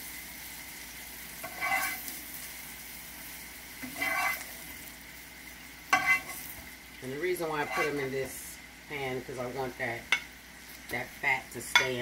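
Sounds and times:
oil sizzling in a skillet: 0.0 - 12.0
spatula scraping a pan: 1.4 - 2.4, 3.8 - 4.8, 5.9 - 6.7, 7.3 - 8.4.

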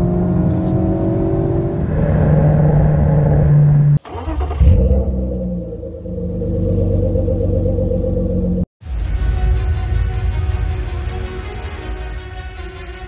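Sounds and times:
car engine accelerating: 0.0 - 8.7
deep engine rumble: 0.0 - 11.4.

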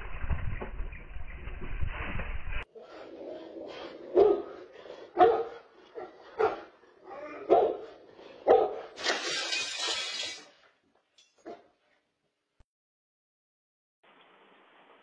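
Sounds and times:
dog barking: 4.1 - 9.0.

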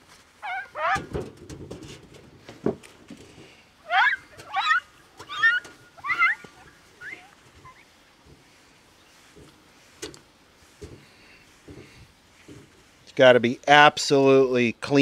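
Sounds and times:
animal harsh rising calls: 0.4 - 1.1, 3.8 - 7.9.

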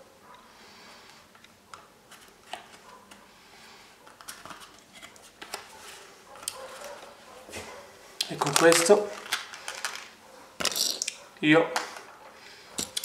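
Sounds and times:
paper rustling: 4.1 - 7.8, 8.4 - 10.2.

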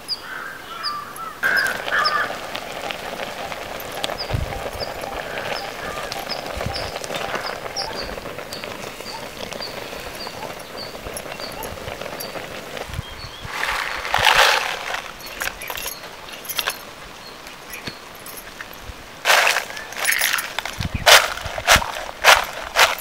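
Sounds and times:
bird chirping: 0.0 - 2.4, 3.4 - 13.6.

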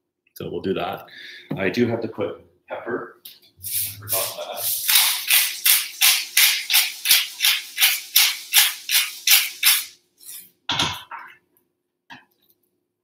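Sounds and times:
pepper grinder grinding: 3.6 - 10.5.

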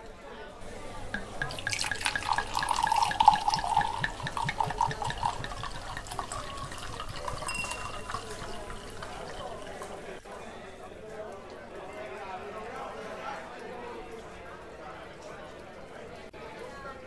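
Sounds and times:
wine pouring into a glass: 0.6 - 10.2.

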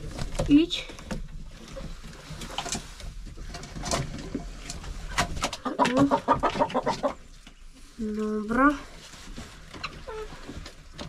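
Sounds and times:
hens pecking on wooden boards: 0.0 - 8.3.

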